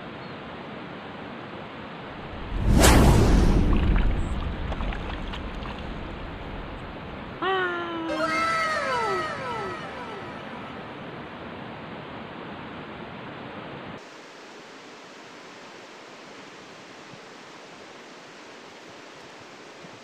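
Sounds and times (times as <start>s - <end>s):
riverside ambience hiss: 0.0s - 20.0s
low rumble: 2.2s - 7.4s.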